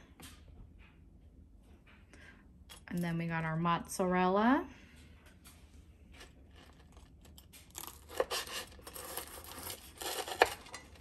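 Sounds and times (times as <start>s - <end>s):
knife crunching through crust: 6.6s - 11.0s.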